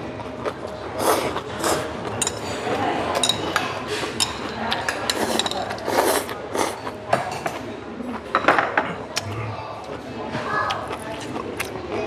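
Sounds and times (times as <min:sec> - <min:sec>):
spoons clinking against bowls: 0:02.1 - 0:07.6.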